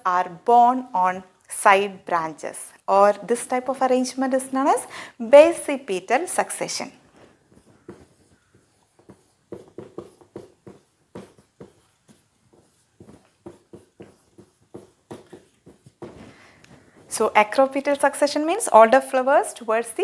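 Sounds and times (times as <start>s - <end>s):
marker writing on whiteboard: 6.3s - 18.2s.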